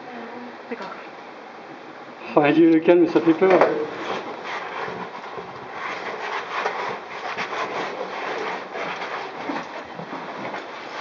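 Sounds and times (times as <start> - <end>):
gear scraping on rock and gravel: 3.2 - 11.0.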